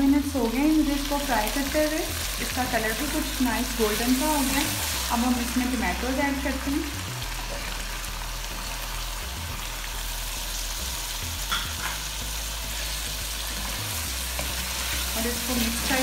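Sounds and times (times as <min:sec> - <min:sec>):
chicken and tomatoes sizzling in oil: 0:00.0 - 0:16.0.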